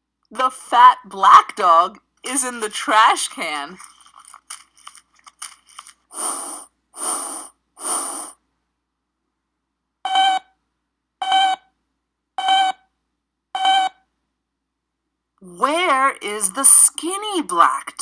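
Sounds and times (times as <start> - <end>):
crackling: 3.6 - 8.4
rubbish rustling crunches: 3.7 - 6.1
short beep: 13.6 - 14.0.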